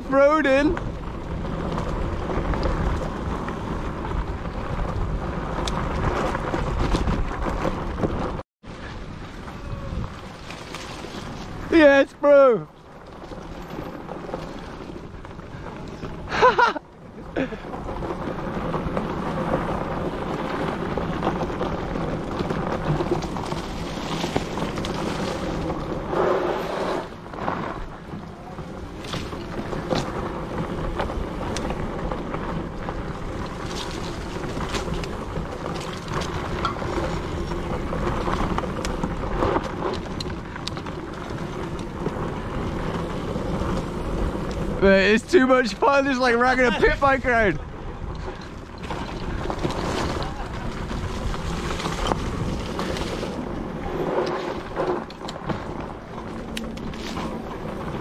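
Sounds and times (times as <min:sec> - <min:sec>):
wind buffeting microphone: 0:00.0 - 0:11.8
bike rattles and knocks: 0:00.0 - 0:58.0
tyre noise on dirt trail: 0:00.0 - 0:58.0.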